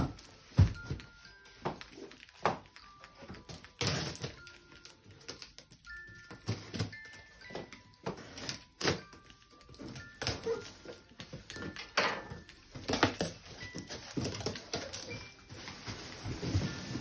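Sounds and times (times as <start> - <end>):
cardboard ripping: 3.2 - 4.6.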